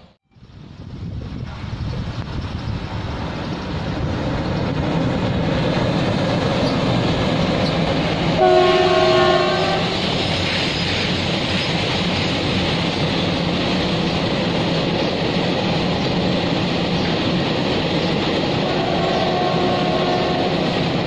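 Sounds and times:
train wheels rolling on rails: 0:00.0 - 0:21.0
diesel locomotive engine running: 0:00.4 - 0:21.0
locomotive horn chord: 0:08.4 - 0:10.0, 0:18.6 - 0:20.6.

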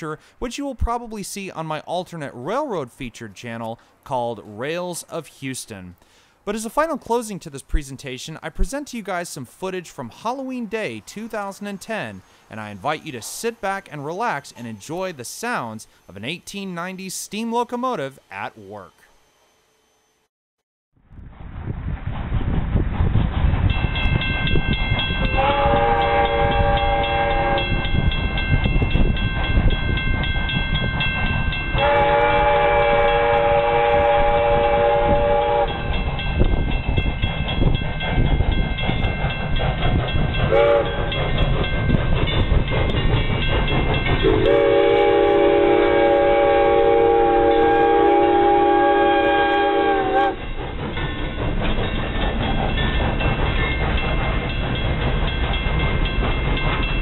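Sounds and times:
low rumble of train rolling: 0:21.0 - 0:57.0
steam locomotive whistle: 0:25.3 - 0:27.9, 0:31.8 - 0:35.9, 0:40.5 - 0:41.1, 0:44.2 - 0:50.4.

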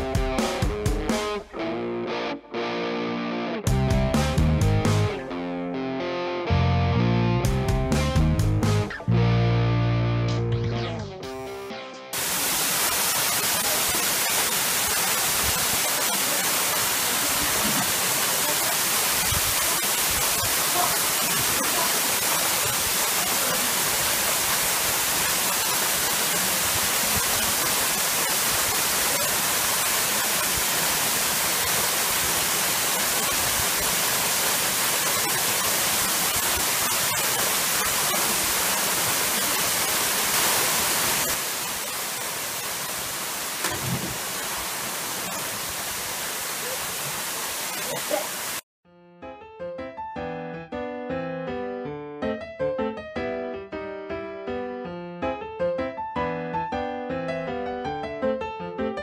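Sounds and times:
waterfall rushing: 0:12.2 - 0:48.6.

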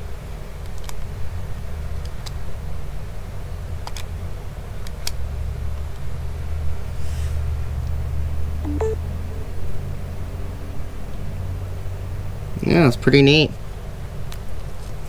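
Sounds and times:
light plastic clicks: 0:03.8 - 0:04.1
two-note rising beep: 0:08.7 - 0:09.6.

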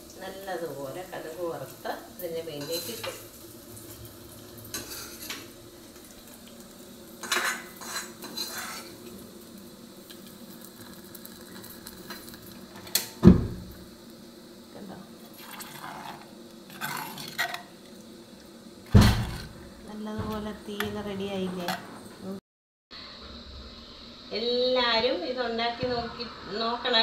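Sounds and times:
spoon scraping clay pot: 0:07.2 - 0:09.0, 0:15.7 - 0:17.7
loud knock on pot: 0:18.9 - 0:19.5.

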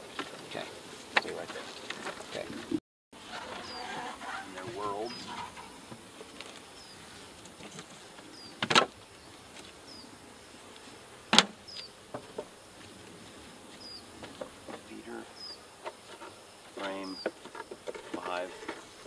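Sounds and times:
honeybees humming: 0:00.0 - 0:19.0
beehive equipment knocking: 0:11.3 - 0:12.6.

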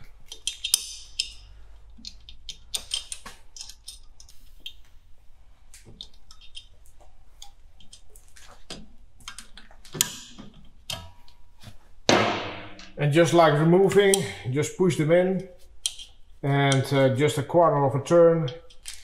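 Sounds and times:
pliers clicking and scraping on metal: 0:00.0 - 0:04.8, 0:15.8 - 0:17.0, 0:18.4 - 0:19.0.

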